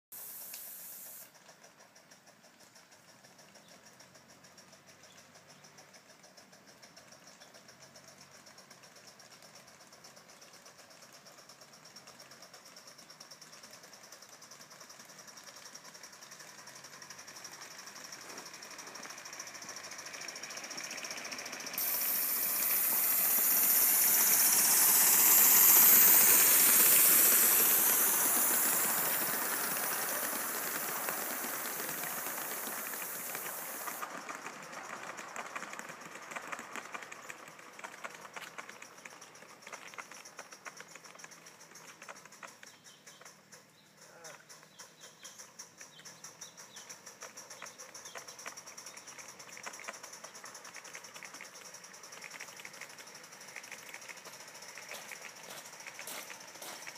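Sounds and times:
loud steam hiss: 0.1s - 1.3s, 20.6s - 35.8s
model steam locomotive running: 0.2s - 56.9s.

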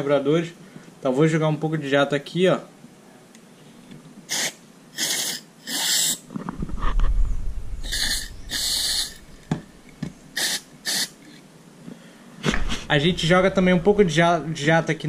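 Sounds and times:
aerosol spray hissing bursts: 4.3s - 6.2s, 7.8s - 9.3s, 10.3s - 11.2s
low rumble: 6.6s - 8.5s, 12.5s - 15.0s.

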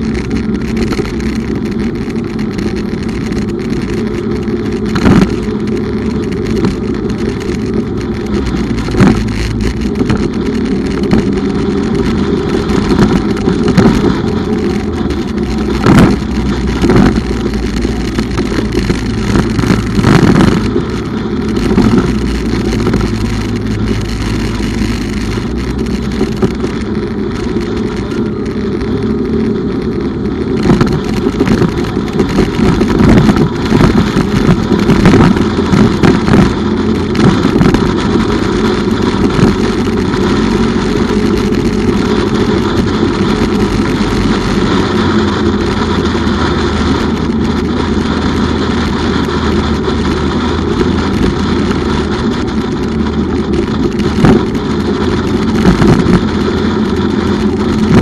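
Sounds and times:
motorcycle engine running: 0.0s - 58.0s
road noise: 0.0s - 58.0s.

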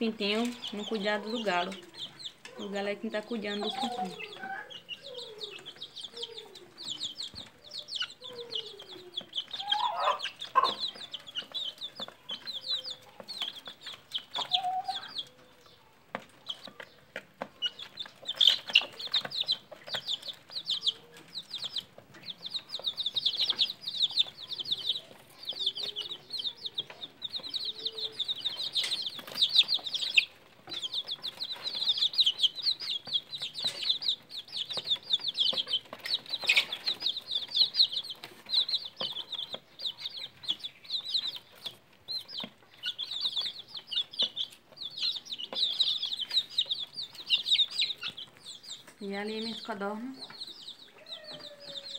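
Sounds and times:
chicks peeping: 0.0s - 51.9s
hen clucking: 0.0s - 51.9s.

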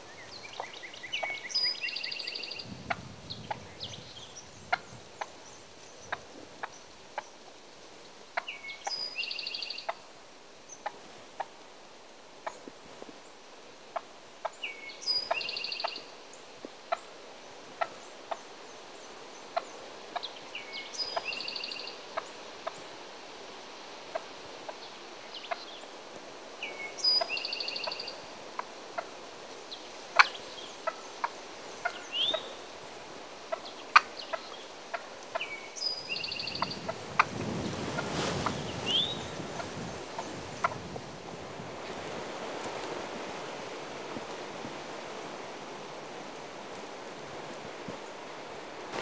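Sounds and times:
turkey rattling call: 30.1s - 32.5s, 33.5s - 35.5s.

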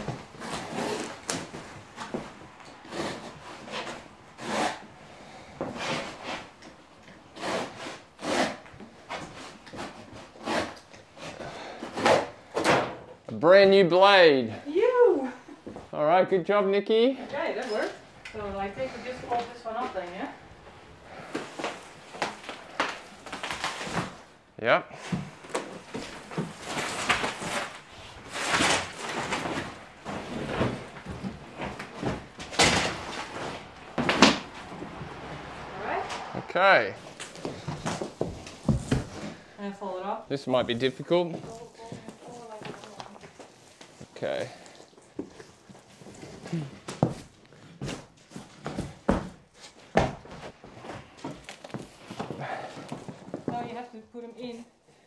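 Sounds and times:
carpet scraping and rustling: 25.0s - 39.6s.

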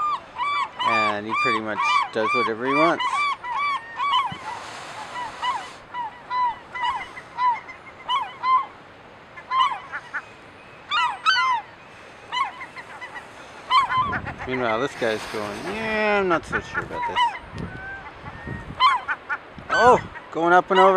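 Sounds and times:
gulls calling: 0.0s - 20.9s
brief hiss: 4.3s - 5.9s, 14.8s - 16.2s.

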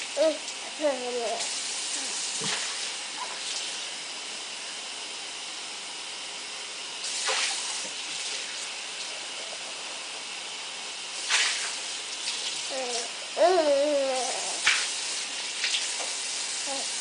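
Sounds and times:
splash or clatter: 7.2s - 8.4s, 11.2s - 12.7s, 14.6s - 15.0s.

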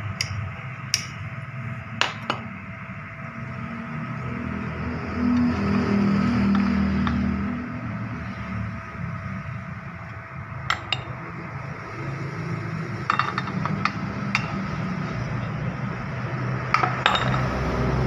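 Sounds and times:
steady low hum: 0.0s - 18.0s
metal plates clinking and tapping: 10.7s - 11.2s, 13.1s - 14.8s, 16.7s - 17.5s.

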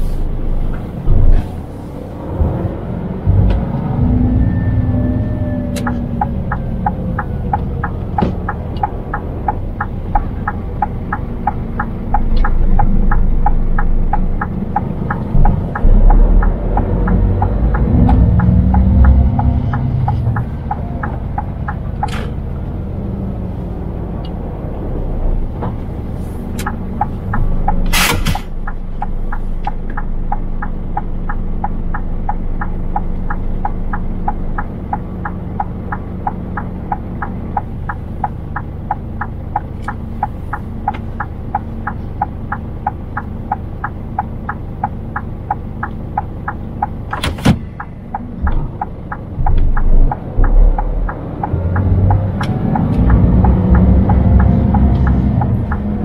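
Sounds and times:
truck engine and road rumble: 0.0s - 56.0s
regular ticking: 5.1s - 56.0s.

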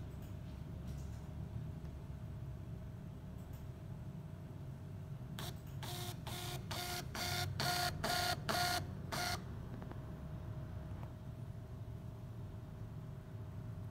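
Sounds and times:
receipt printer whirring: 5.4s - 9.5s.

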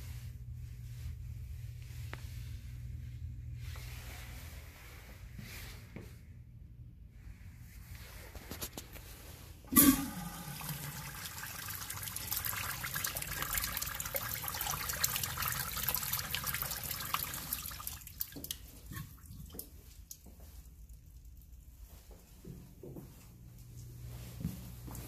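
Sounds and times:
water rushing through urinal: 9.7s - 20.6s.

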